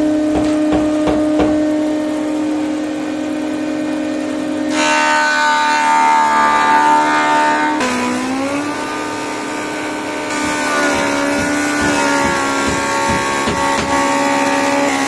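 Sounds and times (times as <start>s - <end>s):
planer cutting wood: 0.0s - 15.0s
woodworking machine humming: 0.0s - 15.0s
knocks: 0.3s - 1.7s, 10.9s - 14.2s.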